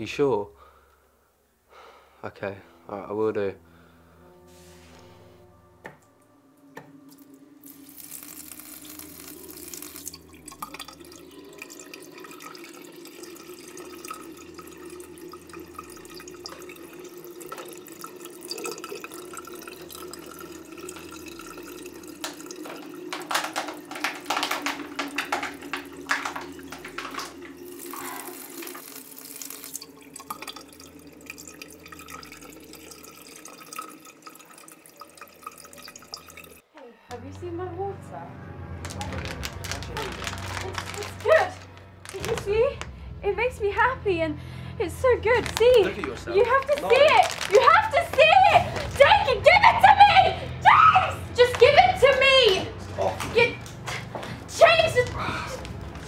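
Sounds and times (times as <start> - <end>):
tap water splashing into sink: 7.6 - 36.6.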